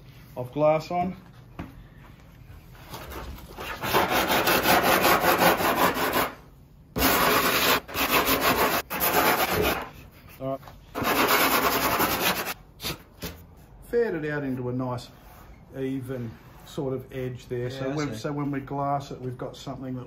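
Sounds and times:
sandpaper scrubbing back and forth: 0:03.0 - 0:06.4, 0:07.0 - 0:10.3, 0:10.9 - 0:12.6.

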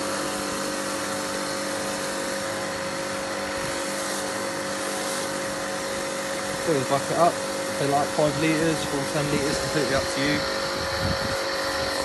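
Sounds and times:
pressure washer motor and pump hum: 0:00.0 - 0:12.0
water spray hissing: 0:03.0 - 0:05.6.

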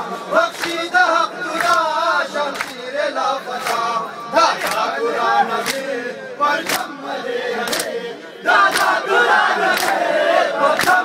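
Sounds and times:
men chanting in chorus: 0:00.0 - 0:11.0
hands slapping chests: 0:02.5 - 0:02.8, 0:03.6 - 0:03.9, 0:05.6 - 0:05.9, 0:06.6 - 0:06.9, 0:07.7 - 0:07.9, 0:08.7 - 0:09.0, 0:09.7 - 0:10.0, 0:10.8 - 0:11.0.

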